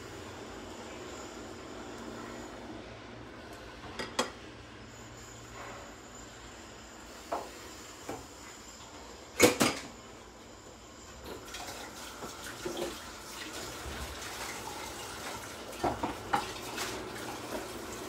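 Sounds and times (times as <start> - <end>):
steady background hum: 0.0 - 18.0
kitchen knocks and clatters: 9.4 - 9.9, 15.7 - 17.0.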